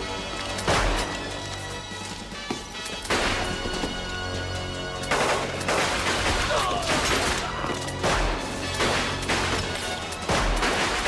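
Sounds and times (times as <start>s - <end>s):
film music score: 0.0s - 11.0s
pistol shots echoing: 5.0s - 11.0s.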